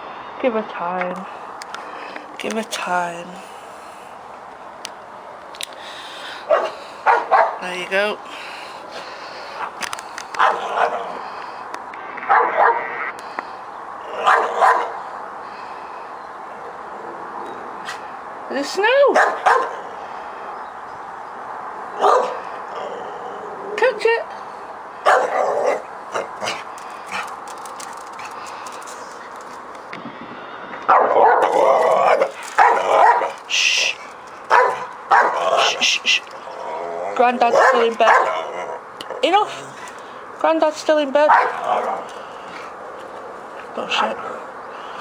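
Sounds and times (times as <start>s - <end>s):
dog barking: 6.5s - 7.6s, 10.4s - 11.2s, 12.3s - 12.9s, 14.2s - 15.0s, 19.1s - 19.8s, 22.0s - 22.4s, 25.0s - 26.6s, 30.9s - 31.5s, 32.1s - 33.4s, 34.5s - 35.8s, 37.5s - 38.4s, 41.3s - 41.8s.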